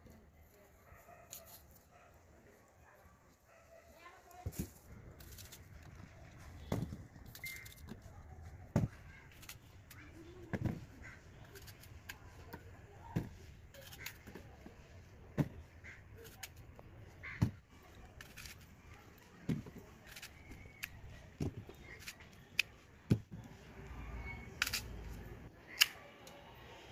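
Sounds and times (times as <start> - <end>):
knife cutting apples: 15.5 - 22.7.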